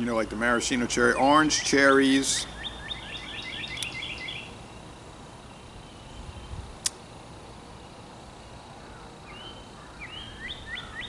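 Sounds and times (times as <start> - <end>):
sharp click: 3.7 - 4.0, 6.8 - 7.0
faint bird call: 8.8 - 11.0.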